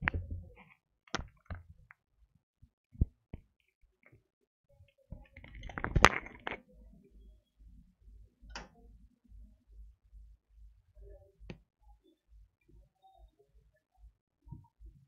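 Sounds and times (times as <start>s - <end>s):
handling clicks and knocks: 5.2s - 6.6s.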